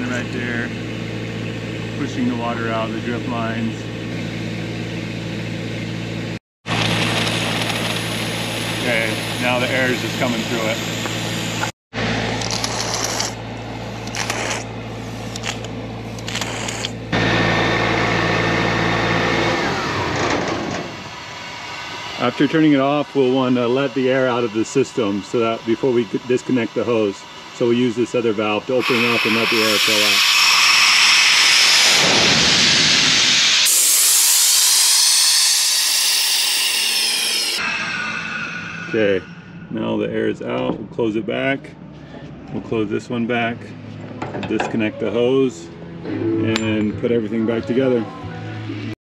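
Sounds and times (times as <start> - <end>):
air compressor engine running: 0.0 - 39.8
engine winding down: 4.4 - 13.4, 15.4 - 40.0
compressed air hissing from valve: 28.8 - 36.7.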